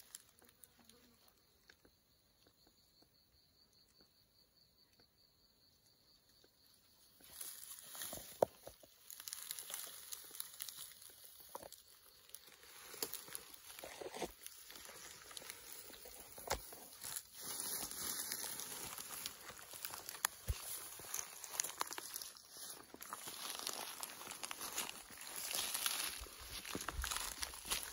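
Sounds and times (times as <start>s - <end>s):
footsteps through dry grass: 7.1s - 27.9s
twigs snapping: 7.4s - 27.9s.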